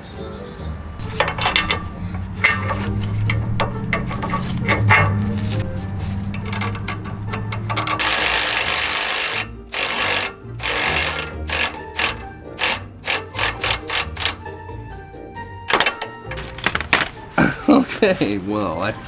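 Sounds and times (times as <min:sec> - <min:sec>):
background music: 0:00.0 - 0:19.0
cordless electric ratchet running: 0:06.2 - 0:14.5
trigger bursts of ratchet: 0:06.3 - 0:14.6.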